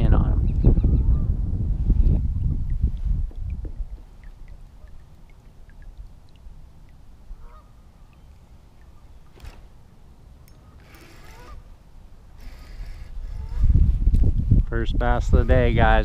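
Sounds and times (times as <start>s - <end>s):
wind rumble on microphone: 0.0s - 5.0s, 12.4s - 16.0s
waterfowl honking: 7.3s - 8.2s, 10.6s - 11.7s.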